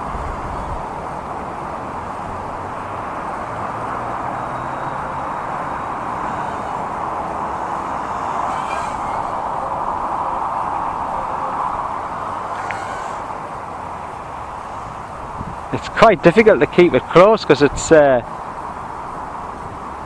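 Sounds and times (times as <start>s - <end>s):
drone propellers buzzing: 0.0s - 16.0s
wind rushing: 5.0s - 16.0s.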